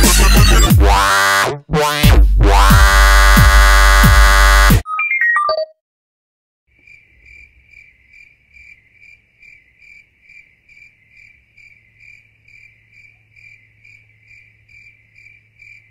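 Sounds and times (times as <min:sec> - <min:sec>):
insect chirping: 0:06.7 - 0:15.9.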